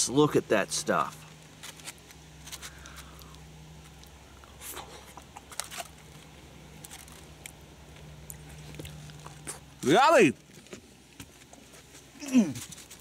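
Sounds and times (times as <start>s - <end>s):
faint low hum: 0.0s - 13.0s
aluminium foil and chips crackling: 1.4s - 3.3s, 3.9s - 11.2s.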